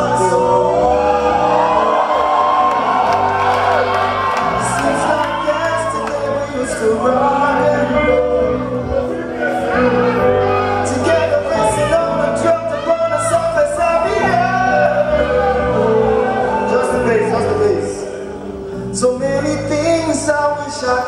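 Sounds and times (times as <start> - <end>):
men singing into microphones: 0.0 - 2.3, 4.4 - 18.1
loud amplified music with bass: 0.0 - 21.0.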